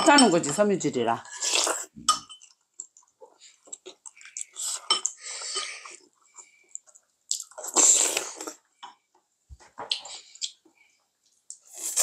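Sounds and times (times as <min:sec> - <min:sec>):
slurping and chewing: 0:01.2 - 0:08.7, 0:09.9 - 0:12.0.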